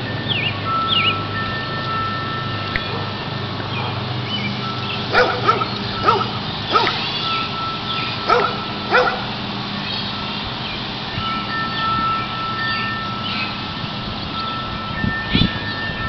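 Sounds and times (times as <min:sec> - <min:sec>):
dog barking: 0:05.1 - 0:07.0, 0:08.3 - 0:09.3.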